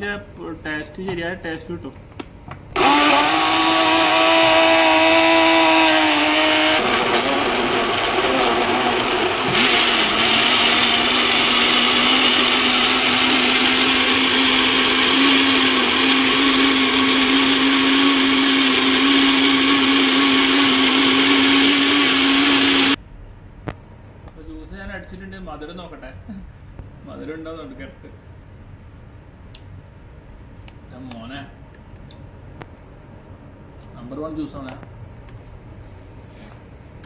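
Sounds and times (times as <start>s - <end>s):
blender running: 2.8s - 23.0s.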